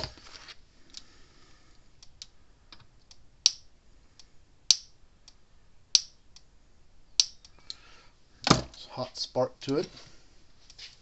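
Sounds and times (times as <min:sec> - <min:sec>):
faint electric ticks: 0:02.0 - 0:04.3.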